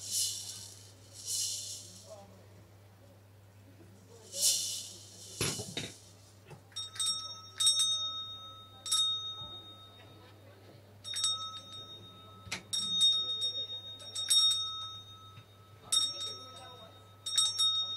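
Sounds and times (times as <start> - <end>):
metal hand bell ringing: 6.8 - 10.2, 11.0 - 17.9.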